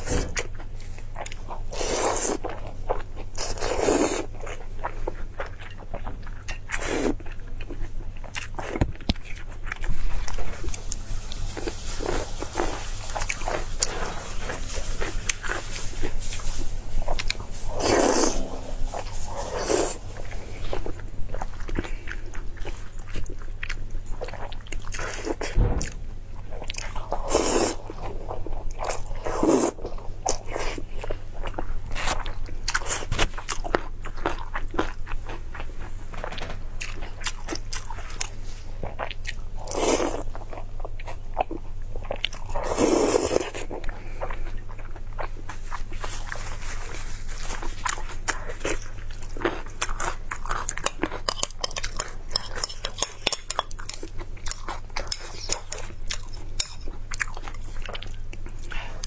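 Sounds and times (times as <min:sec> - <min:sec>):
chewing and wet mouth sounds: 0:00.0 - 0:36.0, 0:36.8 - 0:59.0.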